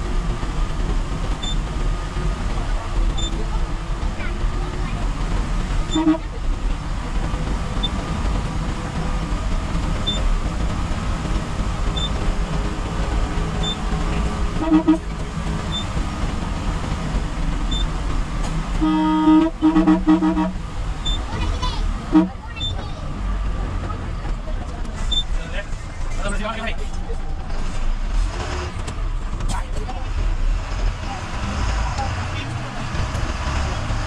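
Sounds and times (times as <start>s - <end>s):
bus engine and road noise: 0.0s - 34.0s
horn toots: 5.9s - 6.4s, 14.5s - 15.8s, 18.8s - 21.2s, 22.1s - 22.7s.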